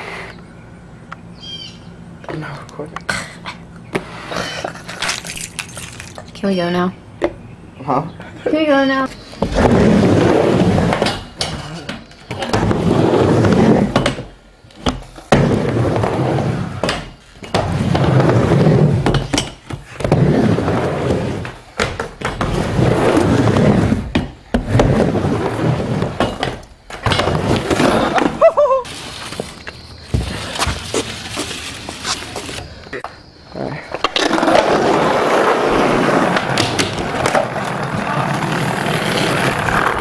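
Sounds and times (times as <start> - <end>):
skateboard wheels rolling on ramp: 9.0 - 32.7, 33.9 - 40.0.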